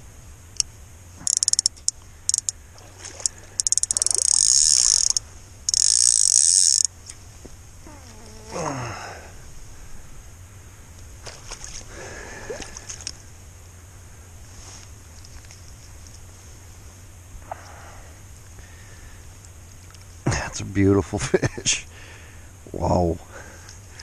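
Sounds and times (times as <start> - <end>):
fishing reel clicker ratcheting: 0.6 - 2.5, 3.6 - 6.9
water splashing and dripping: 2.7 - 4.3.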